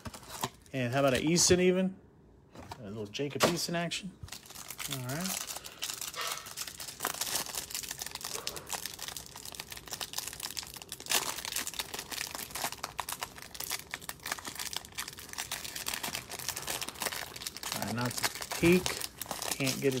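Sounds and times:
plastic wrapper crinkling: 4.2s - 20.0s.

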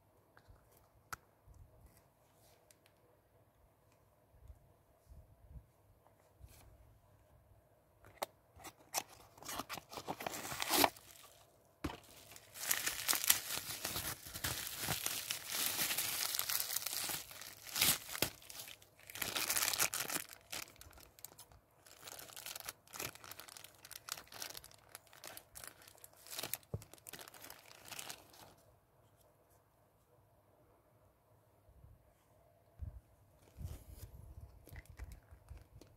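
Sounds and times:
plastic bags crinkling: 9.6s - 28.4s.

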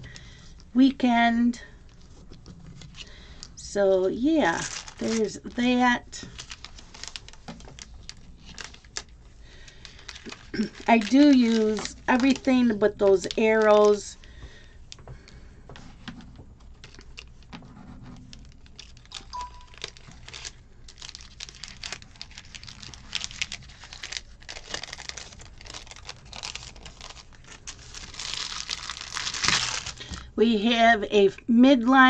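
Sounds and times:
plastic packaging crinkling: 4.2s - 15.0s, 16.6s - 30.3s.

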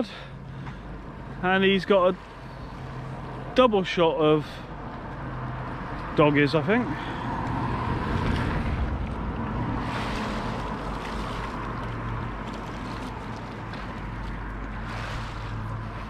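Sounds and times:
wind on microphone: 7.6s - 11.6s
waves washing against wall: 8.1s - 16.0s.

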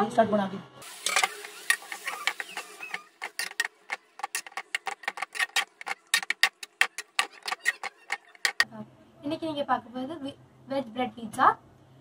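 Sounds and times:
rapid sharp clicking: 1.3s - 8.6s.

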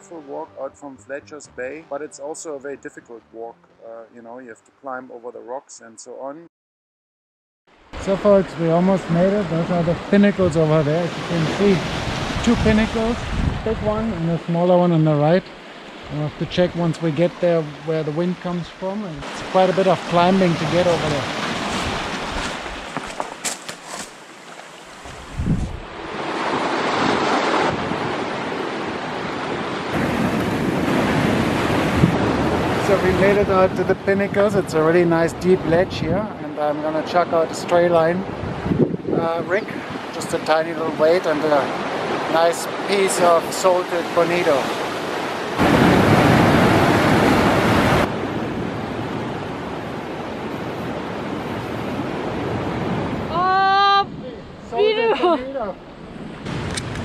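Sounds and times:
wind: 7.7s - 57.0s
surf washing over rocks: 7.9s - 35.7s, 36.6s - 53.6s
wind buffeting microphone: 9.8s - 14.2s, 25.0s - 35.0s, 38.2s - 40.2s
surf breaking against rocks: 19.2s - 33.2s, 41.2s - 49.5s.

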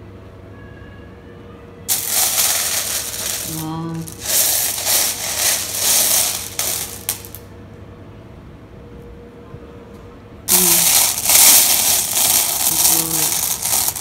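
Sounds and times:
stones clattering together: 1.9s - 7.4s.

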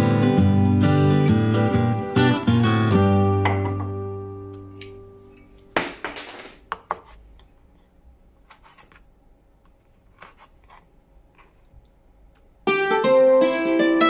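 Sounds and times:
guitar music: 0.0s - 5.4s, 12.6s - 14.0s.

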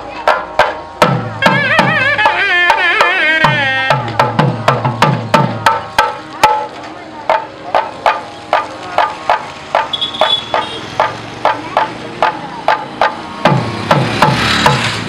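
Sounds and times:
drum beaten in steady rhythm: 0.0s - 15.0s.

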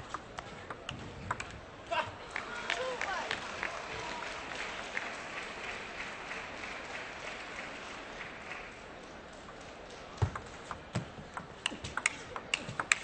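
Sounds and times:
table tennis ball clicks: 0.1s - 1.6s, 10.2s - 13.0s
crowd applause: 2.2s - 10.2s.

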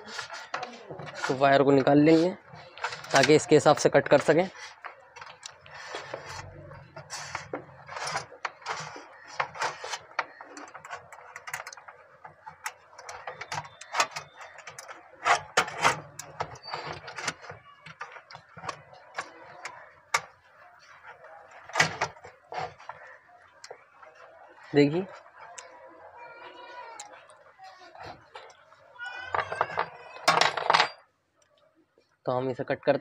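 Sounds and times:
wire clicking and rustling: 0.0s - 25.8s.

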